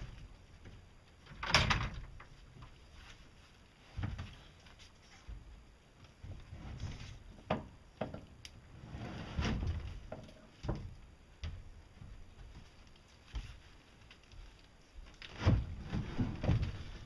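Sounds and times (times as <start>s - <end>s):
wooden crate knocking and thudding: 6.2s - 8.3s, 9.4s - 12.6s, 15.3s - 17.0s
crate scraping on deck: 8.7s - 10.0s, 15.3s - 17.0s.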